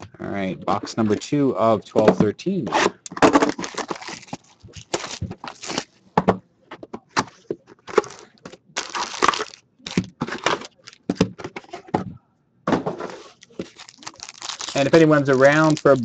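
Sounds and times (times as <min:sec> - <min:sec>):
foil packs crinkling: 0:03.4 - 0:05.9, 0:08.0 - 0:11.2, 0:13.2 - 0:16.0.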